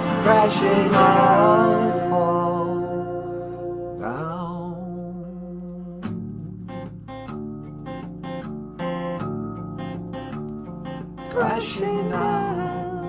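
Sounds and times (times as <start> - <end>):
acoustic guitar strumming: 0.0 - 13.0.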